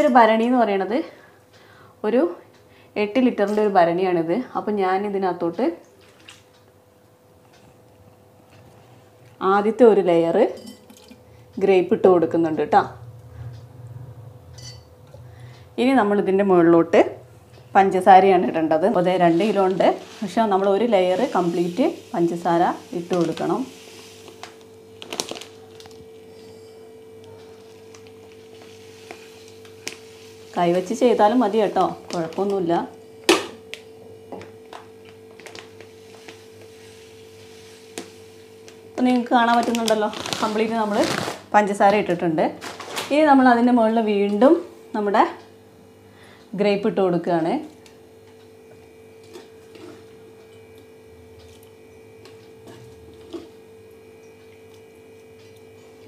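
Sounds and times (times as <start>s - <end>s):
steady electrical hum: 0.0s - 56.0s
plastic bag crinkling: 24.2s - 26.1s, 27.6s - 32.6s, 39.1s - 41.6s, 42.6s - 43.1s.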